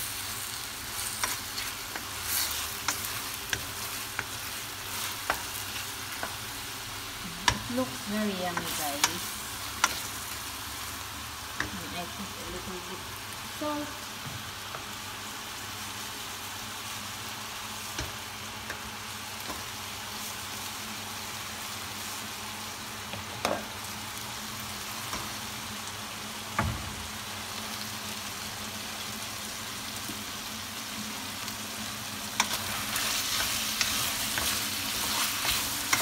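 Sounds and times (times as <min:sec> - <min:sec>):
chicken sizzling in frying pan: 0:00.0 - 0:36.0.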